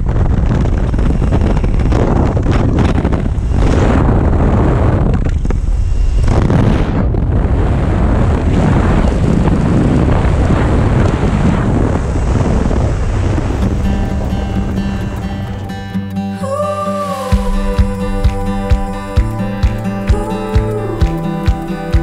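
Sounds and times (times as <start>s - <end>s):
wind buffeting microphone: 0.0s - 16.3s
wind rushing: 0.0s - 22.0s
propeller engine drone: 0.4s - 16.4s.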